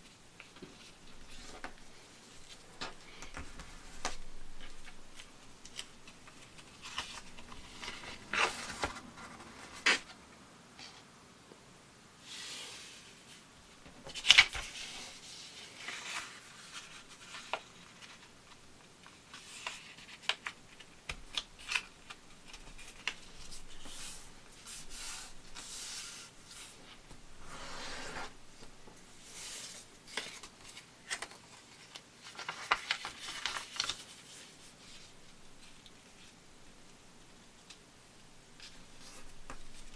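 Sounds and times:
paper crackling as folded: 0:00.4 - 0:10.1, 0:14.1 - 0:27.1, 0:29.2 - 0:36.4
paper rustling and sliding: 0:00.4 - 0:10.1, 0:14.1 - 0:18.3, 0:22.4 - 0:36.4.

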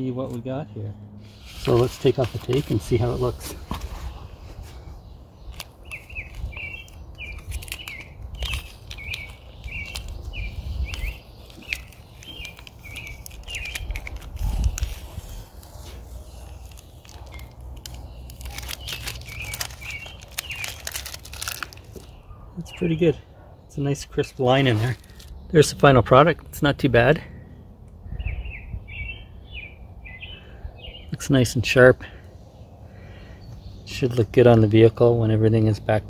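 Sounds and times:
tape and paper crackling: 0:01.2 - 0:04.8, 0:05.4 - 0:22.2, 0:24.1 - 0:25.4
small bird chirping: 0:04.9 - 0:25.6.

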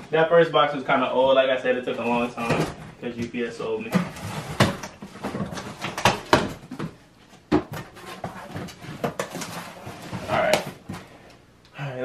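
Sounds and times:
cardboard boxes knocking and scraping: 0:02.0 - 0:11.2.

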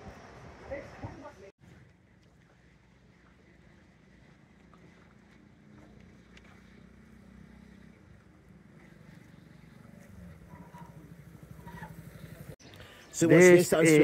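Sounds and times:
distant engine humming: 0:01.7 - 0:12.6.

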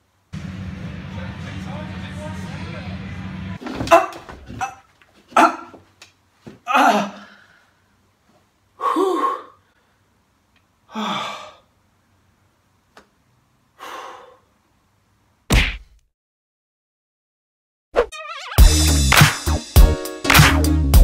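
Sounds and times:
man sighing and groaning: 0:06.6 - 0:07.5, 0:10.9 - 0:11.7.

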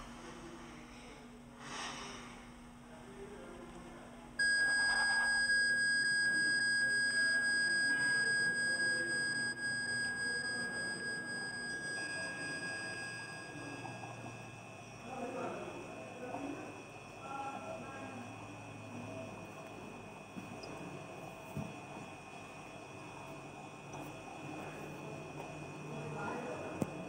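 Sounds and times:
heart monitor flatline tone: 0:04.4 - 0:16.6.

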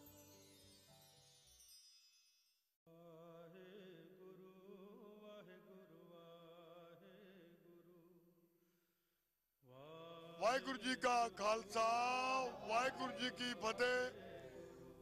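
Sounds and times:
person chanting in long notes: 0:09.9 - 0:15.0.

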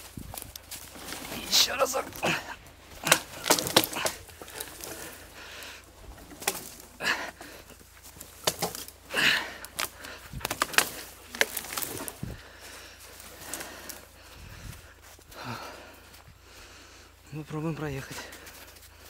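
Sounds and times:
footsteps crunching through snow: 0:00.0 - 0:07.1
twigs snapping and scraping: 0:00.0 - 0:16.3.

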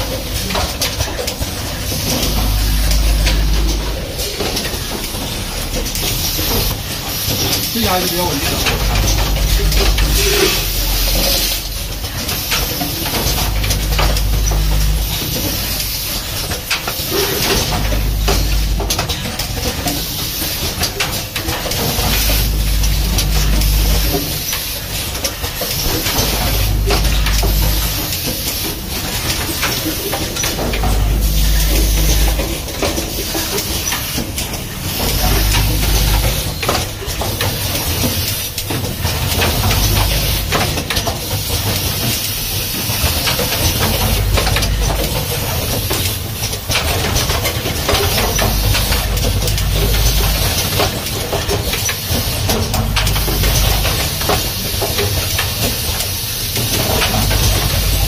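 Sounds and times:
low machine rumble: 0:00.0 - 0:58.0
mechanical clicking and clacking: 0:00.0 - 0:58.0
pneumatic hiss: 0:08.6 - 0:40.8.

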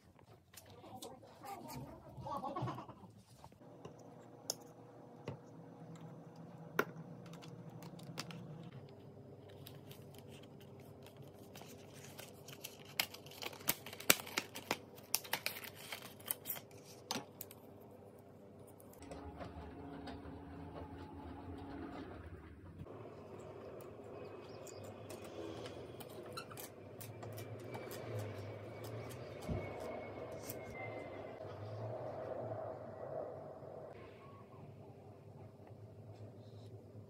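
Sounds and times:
low room hum: 0:00.0 - 0:37.0
plastic wrapping crinkling and clicking: 0:09.5 - 0:17.6.

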